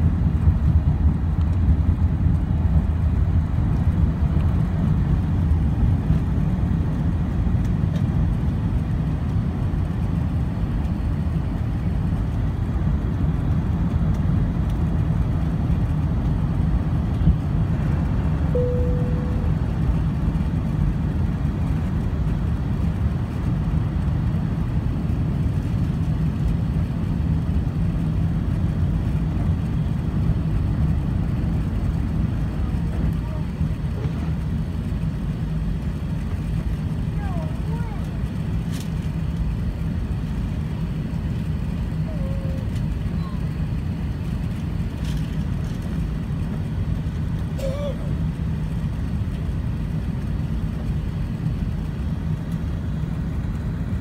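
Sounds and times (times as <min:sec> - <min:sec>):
jet engines roaring: 0:00.0 - 0:54.0
runway roll rumble: 0:00.0 - 0:54.0
short cabin tone: 0:18.5 - 0:19.8.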